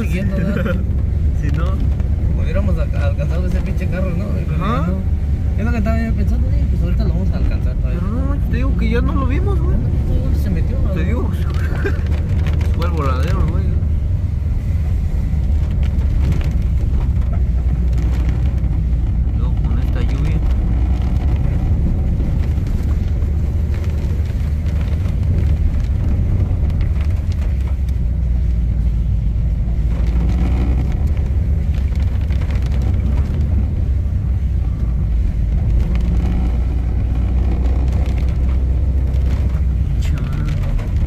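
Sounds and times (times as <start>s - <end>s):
engine and tyres rumble in car: 0.0s - 41.0s.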